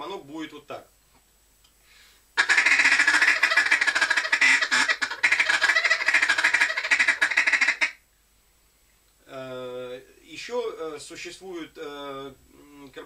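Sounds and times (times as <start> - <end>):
duck call ticking notes: 2.4 - 8.0.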